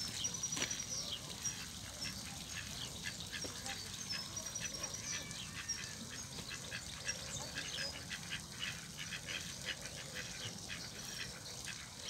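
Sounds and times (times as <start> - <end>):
ducks chirping: 0.1 - 12.0.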